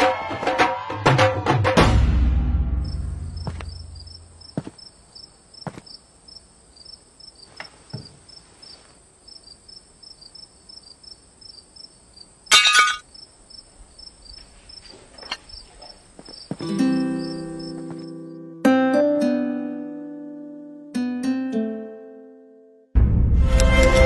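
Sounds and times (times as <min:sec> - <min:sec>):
crickets chirping: 0:02.8 - 0:18.5.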